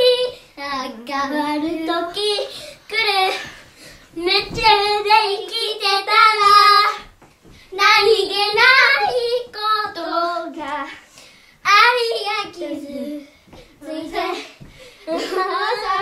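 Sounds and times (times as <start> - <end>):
children singing: 13.8 - 16.0.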